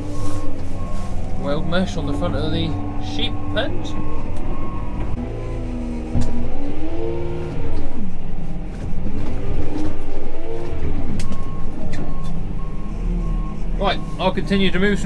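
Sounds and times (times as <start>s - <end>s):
reversing beeper: 0.0s - 7.3s, 10.2s - 15.0s
diesel engine revving: 0.0s - 15.0s.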